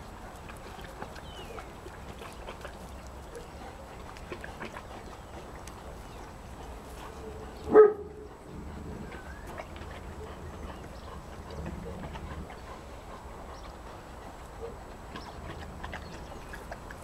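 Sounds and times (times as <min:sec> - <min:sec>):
dog giving deep bark: 0:07.1 - 0:08.3.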